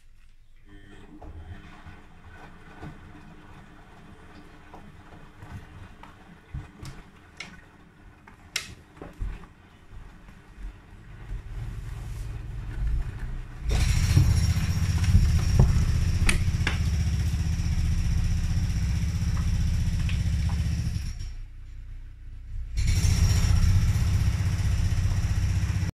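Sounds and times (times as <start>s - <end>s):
washing machine drum turning: 0.9s - 21.4s, 22.8s - 25.9s
washing machine knocks: 13.7s - 21.0s.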